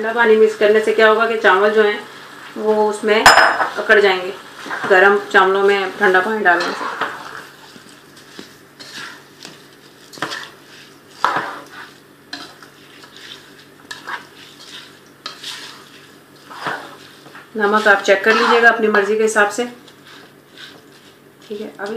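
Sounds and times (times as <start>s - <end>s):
light sizzle: 0.0s - 21.9s
spoon scraping a pot: 6.5s - 19.2s, 19.8s - 21.9s.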